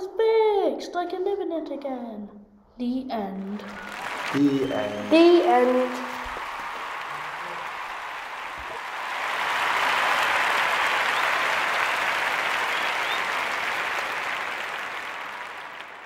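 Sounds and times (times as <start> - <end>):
applause: 3.4 - 16.0.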